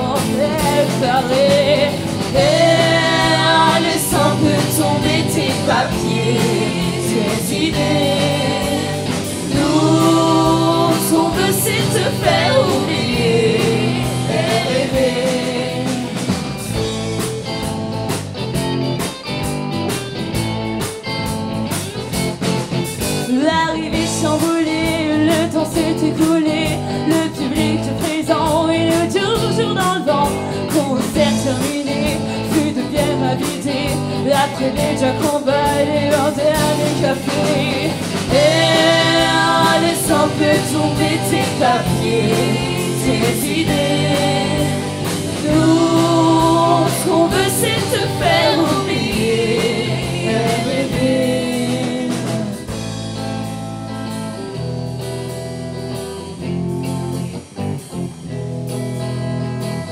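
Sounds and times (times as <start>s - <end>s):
voices singing together: 0.0s - 17.0s, 23.9s - 52.8s
drums: 0.0s - 59.9s
electric guitars: 0.0s - 59.9s.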